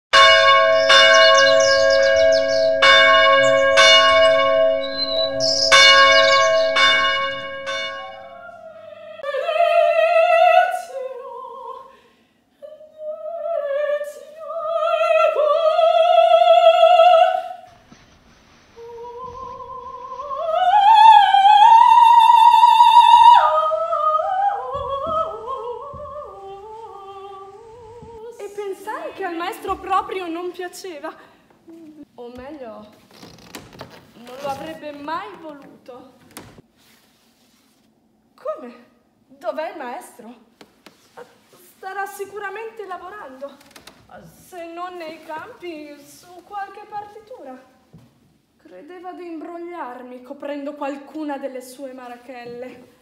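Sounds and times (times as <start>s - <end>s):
church bell ringing: 0.2s - 8.4s
soprano singing operatic phrases: 7.4s - 17.7s, 18.8s - 32.6s.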